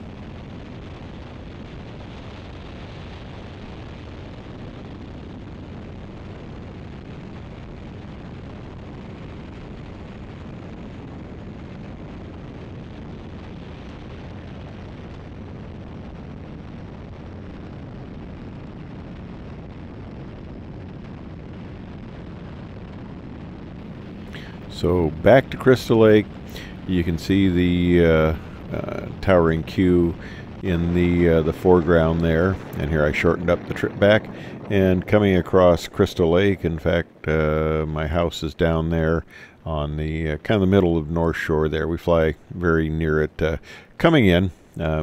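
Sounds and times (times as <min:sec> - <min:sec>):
rushing wind: 0:00.0 - 0:45.0
plane engine drone: 0:23.8 - 0:38.5.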